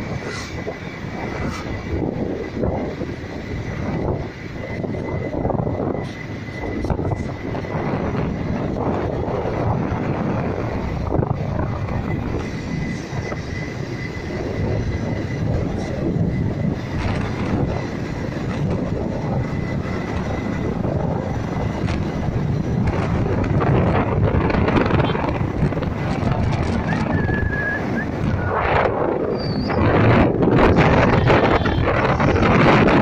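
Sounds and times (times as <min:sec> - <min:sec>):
motorcycle engine and wind rush: 0:00.0 - 0:33.0.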